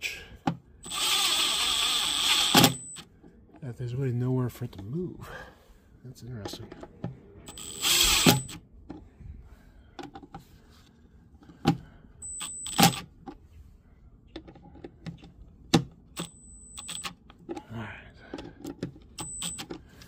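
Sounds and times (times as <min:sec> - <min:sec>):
cordless driver whining: 0:00.8 - 0:03.1, 0:07.5 - 0:08.6, 0:12.4 - 0:13.0
clicks and knocks of bit and bolts: 0:14.4 - 0:17.7.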